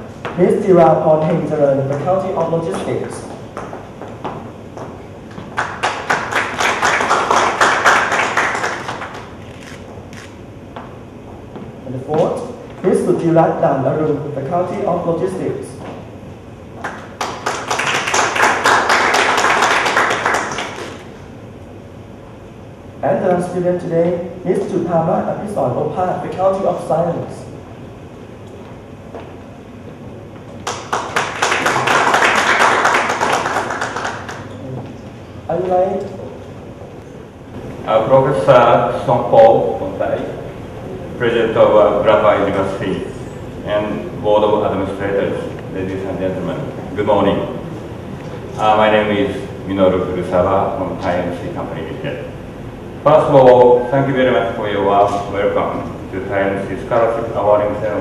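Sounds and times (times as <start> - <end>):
audience applauding: 5.4 - 10.3, 16.8 - 21.2, 30.6 - 34.6.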